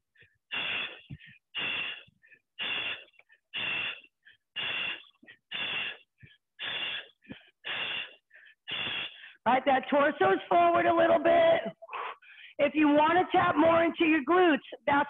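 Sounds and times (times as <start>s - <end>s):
person breathing hard: 0.1s - 9.5s, 11.8s - 12.6s.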